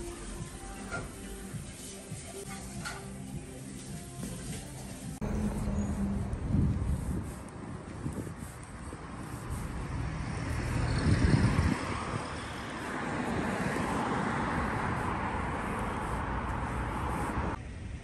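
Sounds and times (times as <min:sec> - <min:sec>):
loud low rumble: 0:05.2 - 0:07.7
passing cars: 0:05.2 - 0:18.0.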